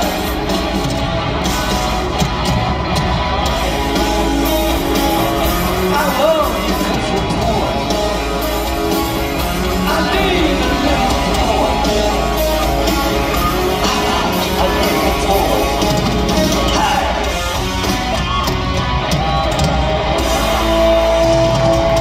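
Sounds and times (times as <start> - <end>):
electric guitars: 0.0 - 22.0
man singing lead vocal: 5.6 - 8.7, 9.4 - 17.6.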